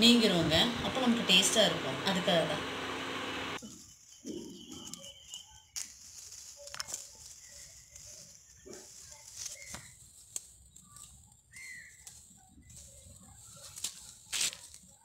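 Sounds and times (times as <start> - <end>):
bird calls: 3.6 - 5.9, 7.2 - 10.0, 10.9 - 13.1
plant leaves rustling: 3.7 - 15.0.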